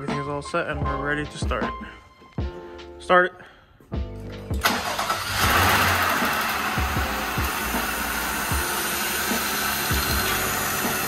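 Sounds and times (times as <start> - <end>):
car engine idling: 4.6 - 11.0.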